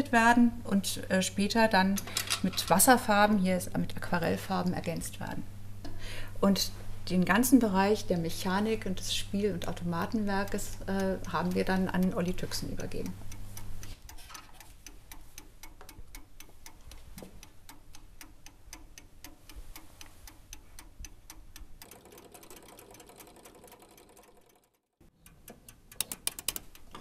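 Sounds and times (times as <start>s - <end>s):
clockwork ticking: 8.0s - 27.0s.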